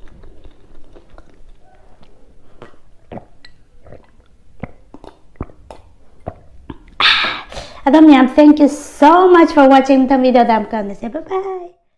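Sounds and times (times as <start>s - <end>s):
person gulping water: 0.0s - 7.8s.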